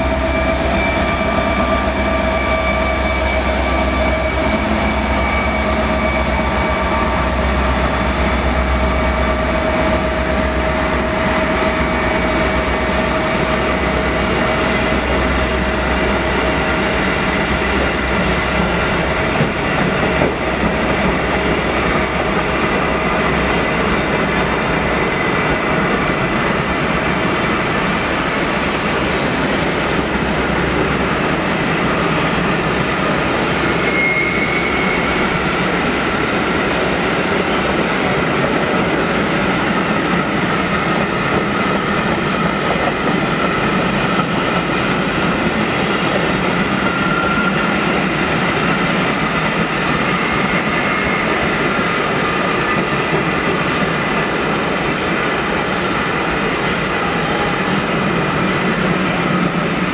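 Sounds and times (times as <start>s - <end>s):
freight train rolling past: 0.0s - 59.9s
faint brief squeal: 33.6s - 35.4s.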